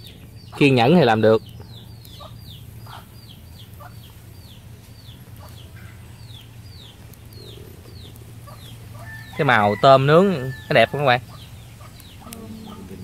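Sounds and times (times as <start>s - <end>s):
chick peeping: 0.0s - 13.0s
steady low hum: 0.0s - 13.0s
low cluck: 11.3s - 13.0s.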